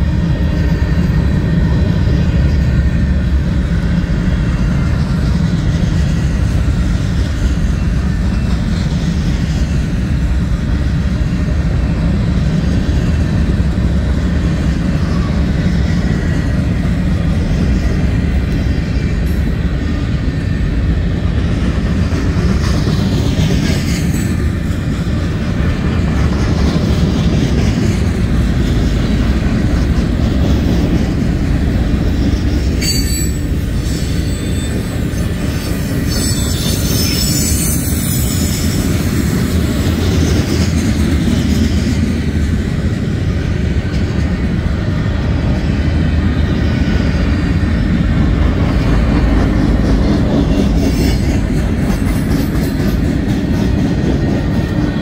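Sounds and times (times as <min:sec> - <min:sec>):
train wheels rumbling on rails: 0:00.0 - 0:55.0
faint wheel squeal: 0:32.8 - 0:39.0.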